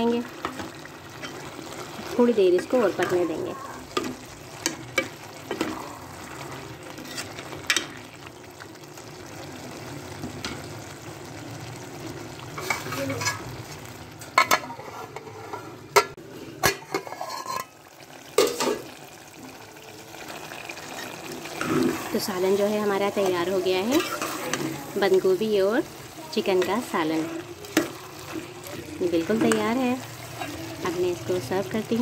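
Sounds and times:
curry sizzling in a pot: 0.0 - 32.0
spoon scraping and knocking pot: 14.4 - 17.8.

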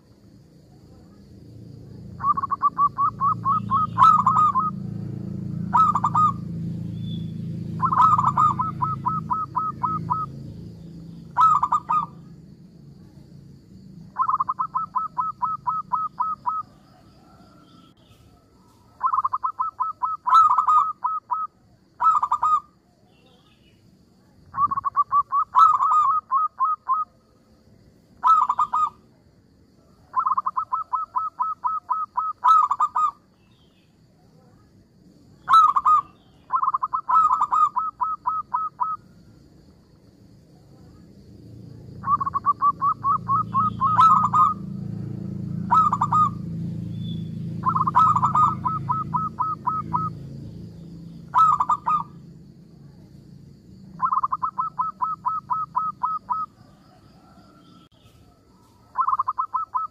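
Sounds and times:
dove cooing: 2.1 - 6.6, 7.7 - 10.5, 11.2 - 12.3, 14.1 - 22.7, 24.5 - 27.2, 28.2 - 29.0, 30.0 - 33.2, 35.4 - 39.1, 42.0 - 44.7, 45.5 - 46.5, 47.5 - 50.2, 51.3 - 52.2, 53.9 - 57.5, 58.2 - 59.9.

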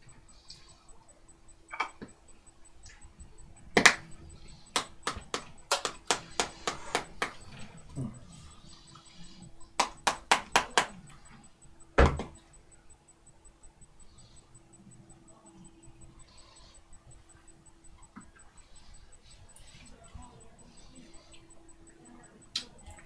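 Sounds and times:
sharp clicks and taps: 1.3 - 23.0
heavy thump: 12.0 - 12.4.

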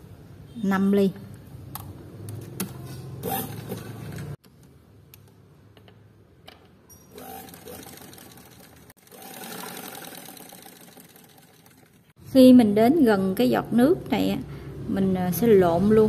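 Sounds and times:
sewing machine stitching: 7.1 - 12.1.

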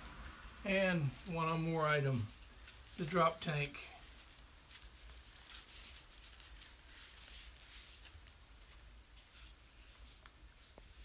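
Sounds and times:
packing wrap crinkling: 2.0 - 10.4.

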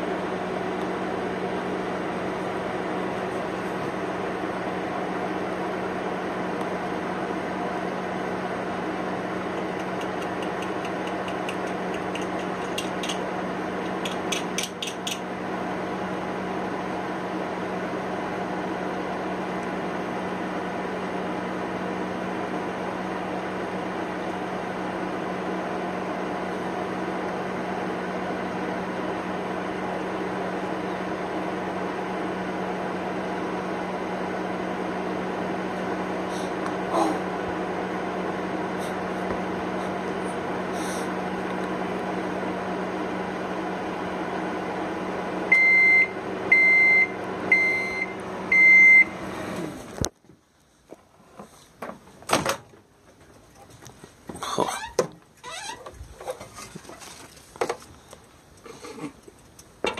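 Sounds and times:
microwave oven humming: 0.0 - 50.2
sharp clicks: 9.6 - 13.2.

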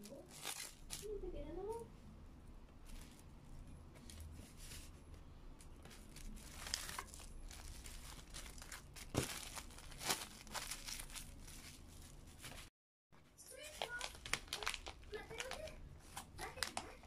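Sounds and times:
cling film crinkling: 5.9 - 12.7, 13.5 - 17.0.

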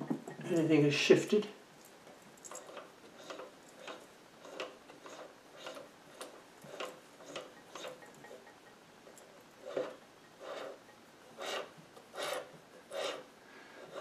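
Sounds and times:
lathe ticking: 2.5 - 13.2.

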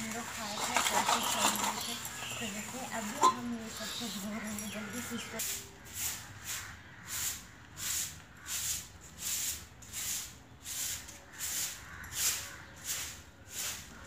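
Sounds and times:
broom sweeping concrete floor: 5.4 - 14.0.

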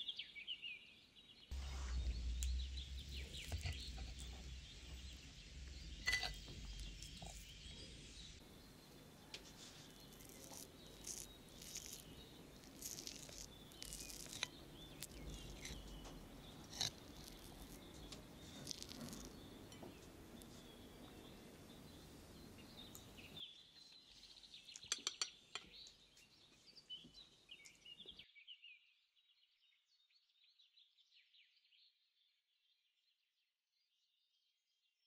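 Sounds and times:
faint background noise: 1.5 - 28.2
metal spoon clinking on plate: 6.0 - 6.5, 24.8 - 25.7.

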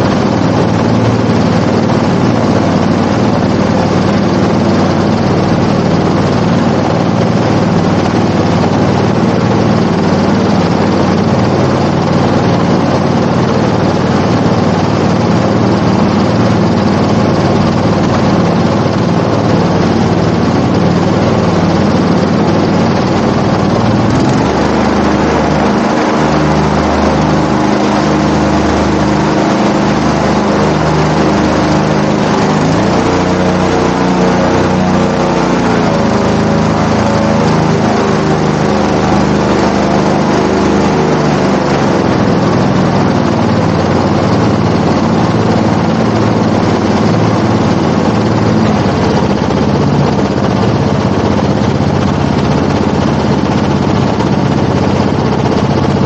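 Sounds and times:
airboat engine and propeller: 0.0 - 56.0.

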